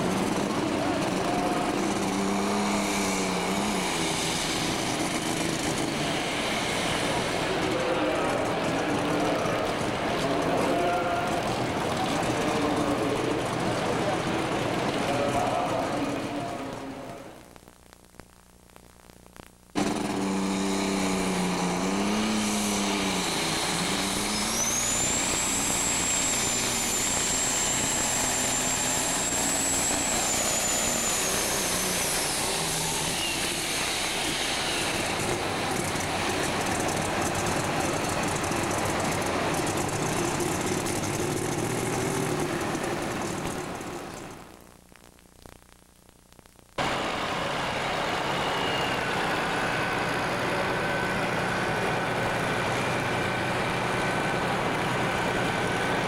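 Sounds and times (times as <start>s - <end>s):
diesel tractor engine at full power: 0.0s - 17.4s, 19.8s - 44.6s, 46.8s - 56.0s
high turbo whistle: 19.8s - 36.3s, 46.9s - 51.7s.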